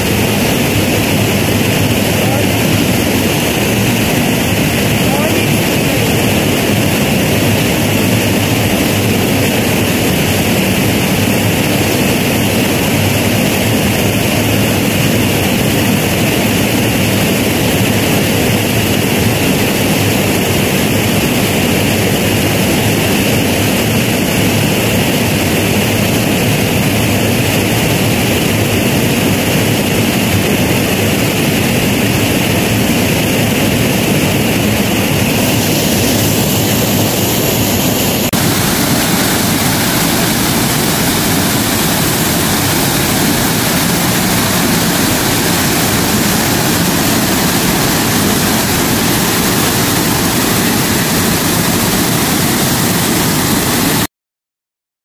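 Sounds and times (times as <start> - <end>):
roar of rushing water: 32.0 - 54.0.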